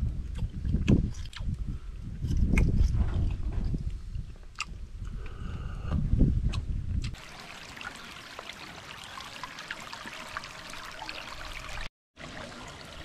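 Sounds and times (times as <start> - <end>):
stream water rushing: 7.2 - 13.0.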